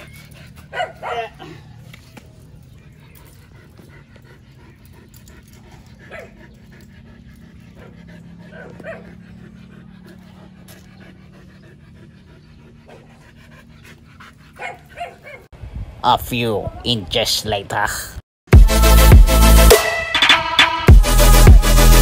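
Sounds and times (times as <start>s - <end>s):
dog panting: 0.0s - 15.5s.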